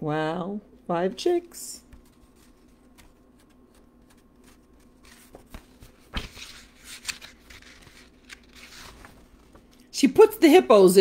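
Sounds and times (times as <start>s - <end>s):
book pages turning: 1.8s - 9.9s.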